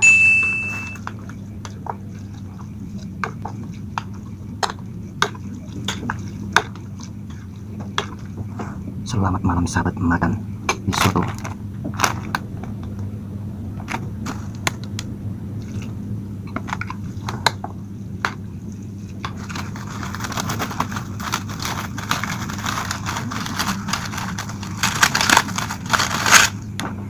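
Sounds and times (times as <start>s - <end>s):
steady low hum: 0.0s - 27.0s
plastic packaging crinkling: 19.3s - 26.7s.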